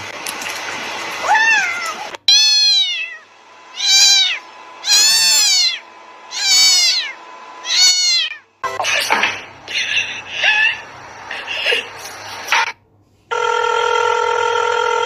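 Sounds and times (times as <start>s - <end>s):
cat meowing: 1.2s - 3.2s, 3.8s - 8.4s.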